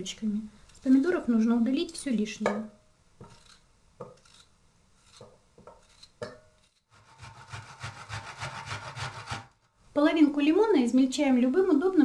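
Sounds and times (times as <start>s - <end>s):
knife cutting tomatoes: 3.2s - 9.5s
lemon scraped on metal grater: 4.2s - 9.5s.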